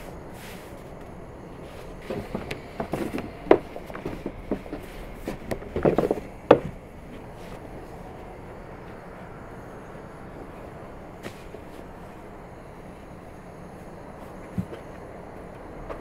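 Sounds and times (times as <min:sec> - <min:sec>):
rolling pin knocking on wooden board: 0:02.1 - 0:06.8.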